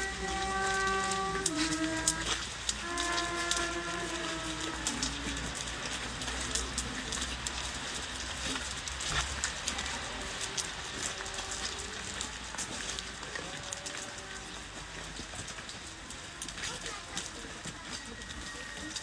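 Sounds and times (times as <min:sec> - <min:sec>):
held musical note: 0:00.0 - 0:05.7
light rain pattering: 0:00.0 - 0:19.0.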